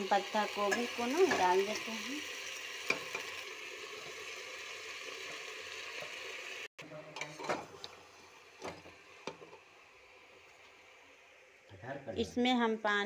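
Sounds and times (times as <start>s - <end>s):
food sizzling in metal pot: 0.0s - 13.0s.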